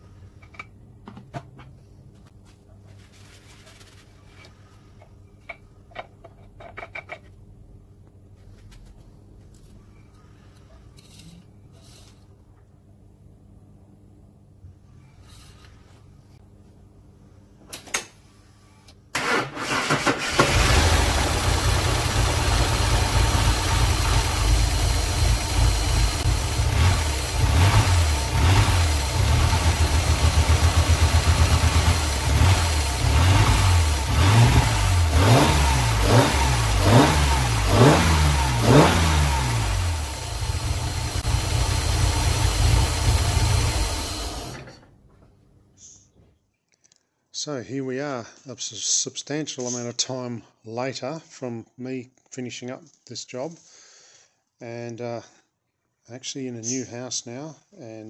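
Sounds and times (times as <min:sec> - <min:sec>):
car engine starting and idling: 0:19.1 - 0:44.8.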